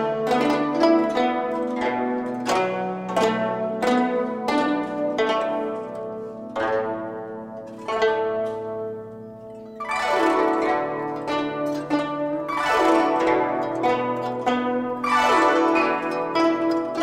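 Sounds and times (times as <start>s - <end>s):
plucked zithers playing: 0.0s - 17.0s.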